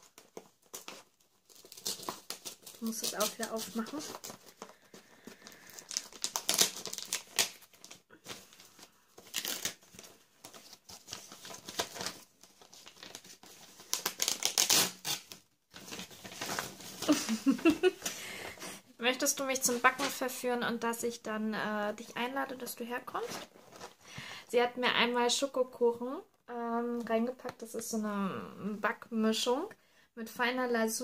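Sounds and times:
wrapping paper crinkling and tearing: 0.0s - 18.2s.

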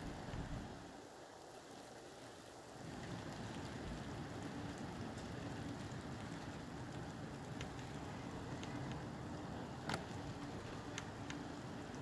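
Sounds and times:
gusty wind: 0.0s - 12.0s
steady rain hissing: 0.0s - 12.0s
faint drip ticks: 2.9s - 9.1s, 9.8s - 12.0s.

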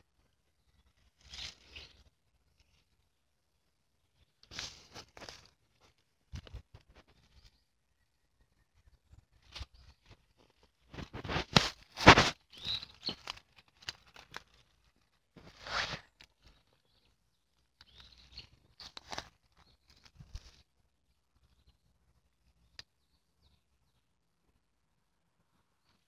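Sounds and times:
dry leaves and grass crunching: 0.6s - 3.2s, 4.1s - 7.6s, 9.3s - 20.8s.

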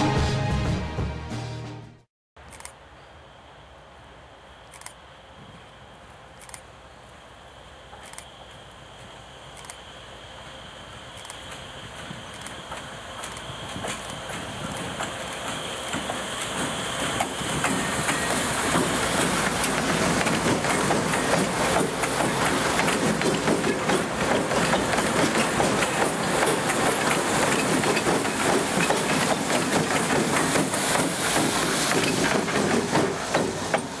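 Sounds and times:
locomotive engines rumbling: 3.0s - 34.0s
wheels clacking over rails: 11.4s - 34.0s.

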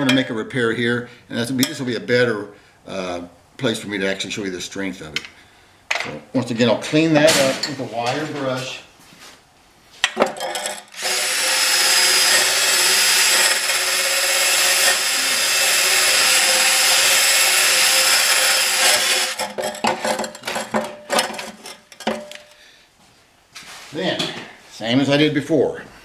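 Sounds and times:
drill wire wheel scrubbing metal pipe: 10.4s - 22.6s
clattering knocks: 18.8s - 22.6s.

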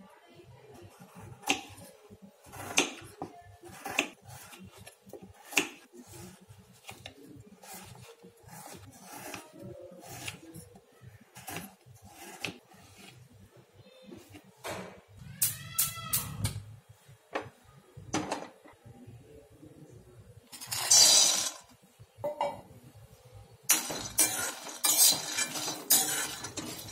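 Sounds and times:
knife scraping and chopping: 0.9s - 13.3s, 23.7s - 26.9s.

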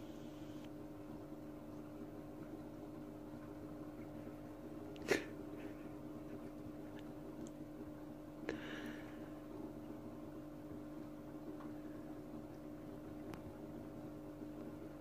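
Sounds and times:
air pump humming: 0.0s - 0.8s, 4.9s - 9.7s.

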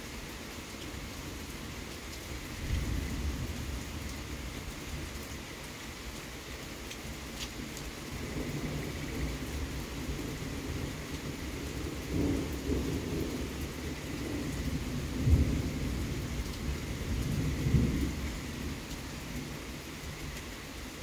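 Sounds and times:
steady rain hiss: 0.0s - 21.0s
thunder rumbling: 8.1s - 19.6s.

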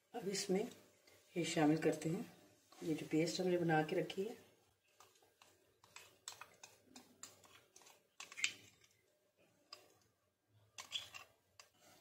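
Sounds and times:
spatula tapping and scraping bowl: 4.8s - 8.9s, 10.8s - 12.0s.

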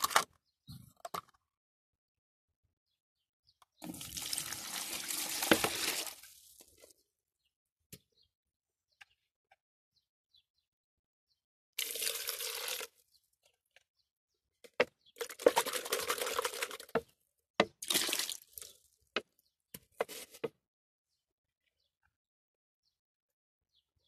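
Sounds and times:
water pouring and splashing: 3.8s - 6.9s, 11.8s - 13.0s, 15.2s - 17.0s, 17.6s - 18.8s.

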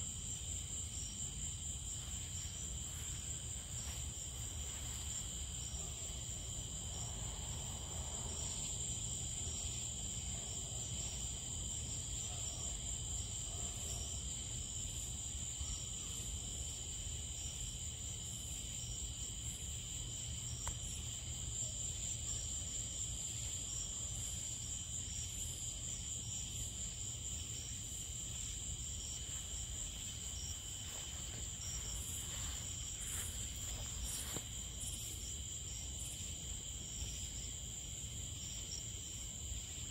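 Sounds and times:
crickets and insects trilling: 0.0s - 39.9s
low steady background noise: 0.0s - 39.9s.

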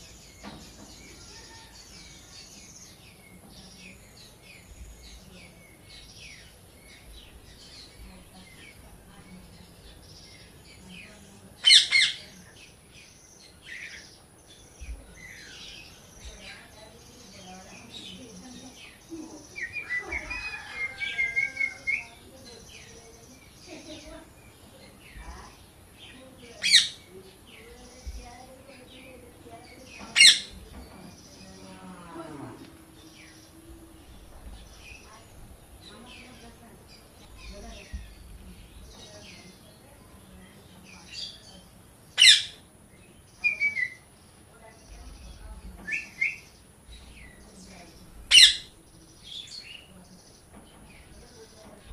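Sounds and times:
parakeet chirping: 11.6s - 12.2s, 26.6s - 27.1s, 29.9s - 30.6s, 42.1s - 42.6s, 48.0s - 48.7s
parrot calling: 11.6s - 12.2s, 26.6s - 27.1s, 30.1s - 30.6s, 42.2s - 42.6s, 48.3s - 48.8s.

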